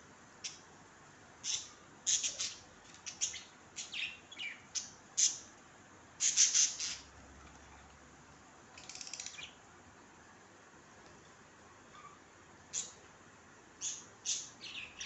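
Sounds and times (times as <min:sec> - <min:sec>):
budgerigars chirping: 0:01.4 - 0:05.4, 0:06.2 - 0:07.1.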